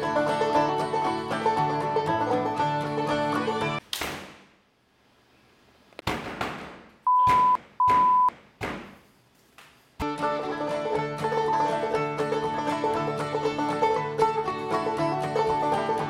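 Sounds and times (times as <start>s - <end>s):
plucked-string music: 0.0s - 3.8s, 10.0s - 16.0s
dull thuds: 6.0s - 9.1s
electronic beeps: 7.1s - 8.3s.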